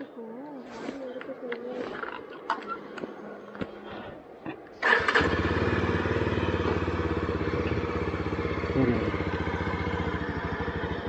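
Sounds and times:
motorcycle engine idling: 4.8 - 11.0
motorcycle engine starting: 4.8 - 11.0.

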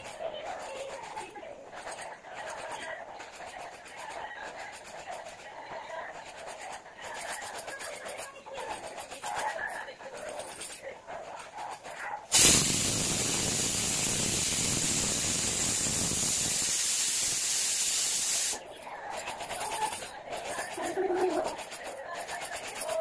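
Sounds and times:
pressure cooker steam hissing: 12.3 - 18.6.

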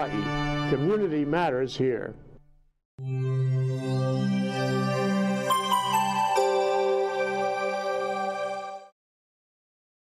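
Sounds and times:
held music chord: 3.0 - 8.9.

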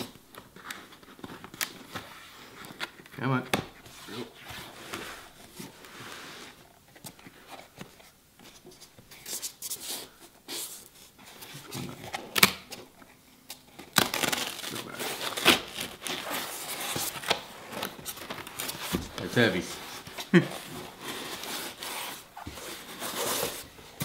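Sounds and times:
tape being peeled: 13.5 - 24.0
cardboard box rustling: 14.8 - 24.0.

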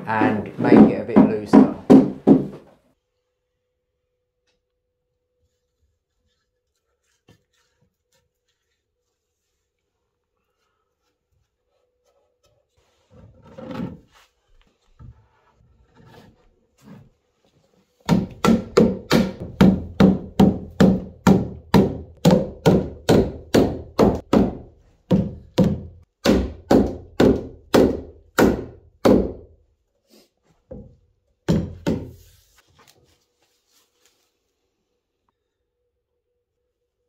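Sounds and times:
rubber mallet knocking on wood: 0.6 - 2.6, 18.1 - 29.5, 31.5 - 32.2.

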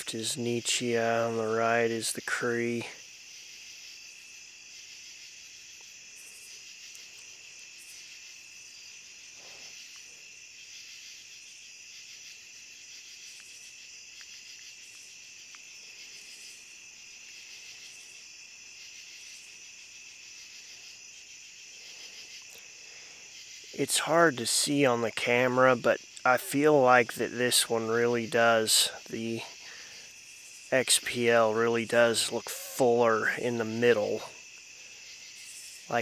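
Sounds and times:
crickets trilling: 0.0 - 36.0
high insect buzz: 0.0 - 36.0.

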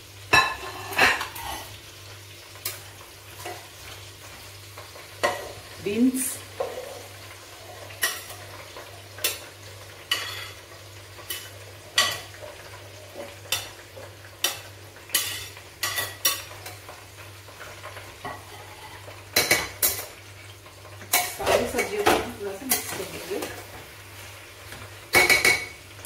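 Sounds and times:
vegetables sizzling in oil: 0.0 - 26.0.

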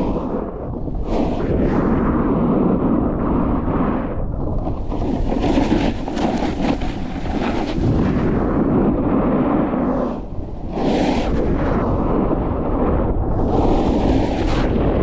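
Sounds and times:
wind buffeting microphone: 0.0 - 15.0
snowboard scraping on snow: 4.8 - 11.9, 13.4 - 14.9.

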